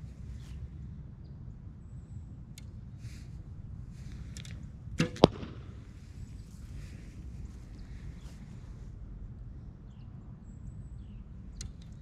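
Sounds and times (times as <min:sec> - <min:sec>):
arrow striking bag target: 0:05.0 - 0:05.8.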